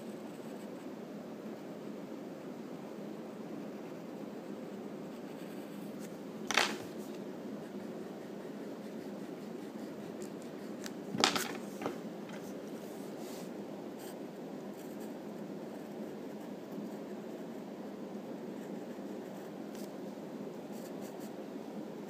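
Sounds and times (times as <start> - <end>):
pencil scratching on paper: 7.6 - 10.9.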